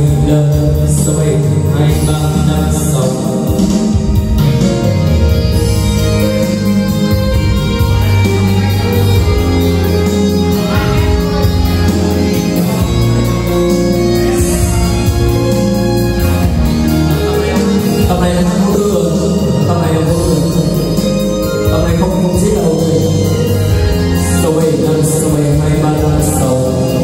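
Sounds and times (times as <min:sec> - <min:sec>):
man singing into microphone: 0:00.0 - 0:04.0, 0:17.5 - 0:23.6, 0:24.2 - 0:27.0
karaoke song over loudspeakers: 0:00.0 - 0:27.0.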